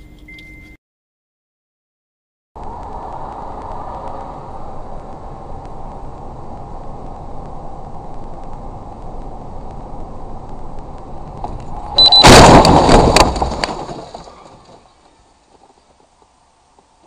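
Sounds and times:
road noise inside car: 2.6s - 17.0s
loud car crash: 12.0s - 15.2s.

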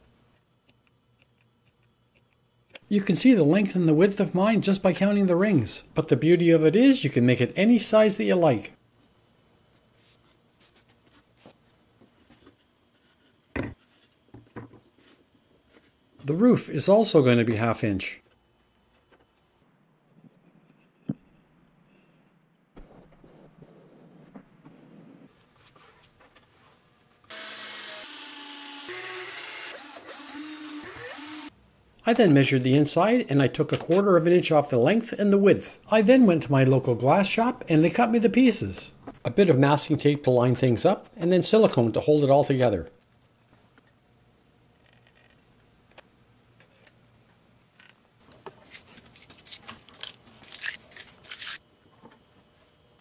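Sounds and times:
small electric power tool motor: 27.3s - 31.5s.

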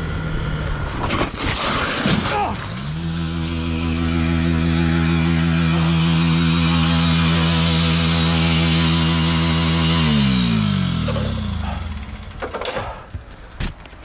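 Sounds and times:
motorcycle engine running: 0.0s - 1.0s, 2.7s - 14.0s.

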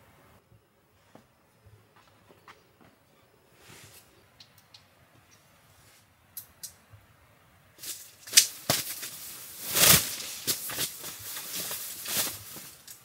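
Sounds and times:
fabric rustles: 7.8s - 13.0s
handling noise rustling and clattering: 7.8s - 13.0s.

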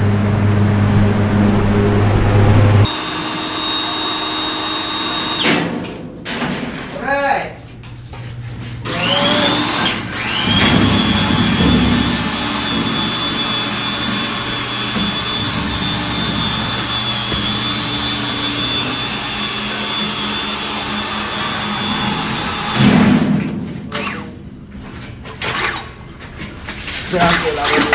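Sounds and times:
electric motor whining: 0.6s - 5.5s, 8.9s - 22.8s.

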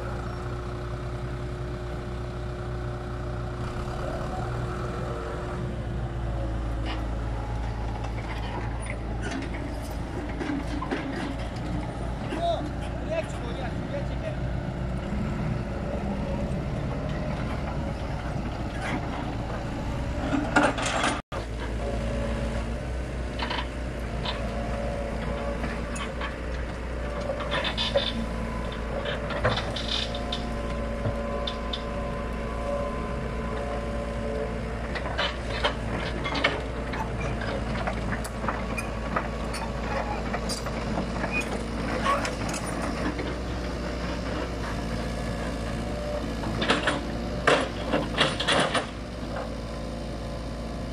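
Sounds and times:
excavator diesel engine running: 0.0s - 50.9s
steel tracks and bucket clanking: 6.7s - 14.4s, 16.0s - 22.0s, 23.3s - 50.1s.

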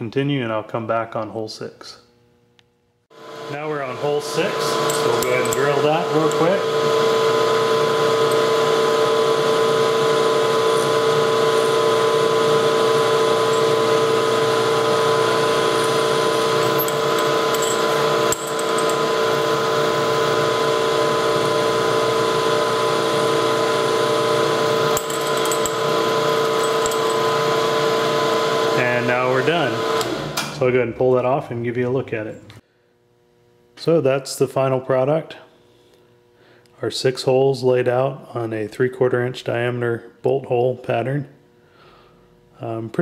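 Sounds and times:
milling machine spindle whine: 3.2s - 30.6s
drill bit cutting metal: 3.4s - 30.2s.

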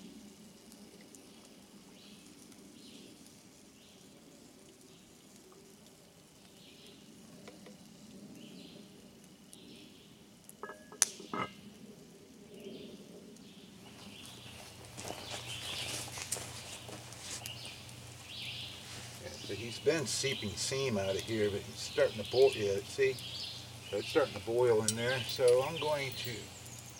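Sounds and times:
wood fire crackling: 0.0s - 26.9s
birds: 0.6s - 26.9s
metal clink of cookware: 10.6s - 11.6s
rustling movement: 13.9s - 23.0s.

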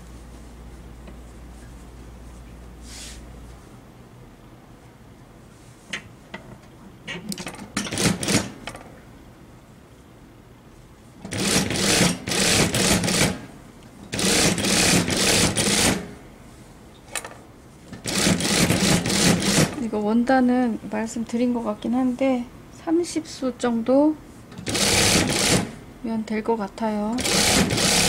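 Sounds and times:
sewing machine stitching: 11.3s - 13.4s, 14.1s - 16.0s, 18.0s - 19.8s, 24.6s - 25.7s, 27.2s - 28.0s.

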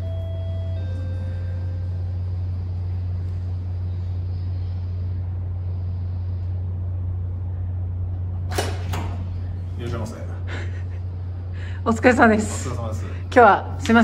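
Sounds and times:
two-tone intercom door chime: 0.0s - 2.1s
low hum: 0.0s - 14.0s.

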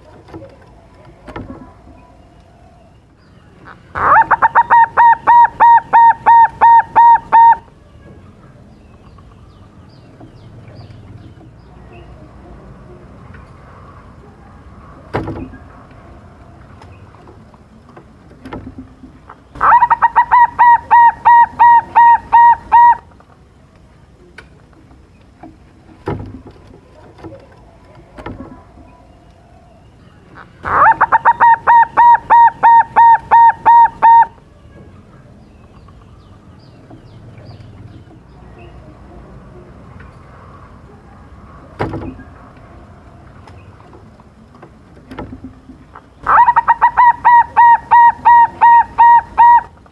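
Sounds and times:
dove cooing song: 3.6s - 7.8s, 19.5s - 23.1s, 30.4s - 34.4s, 45.1s - 49.9s.

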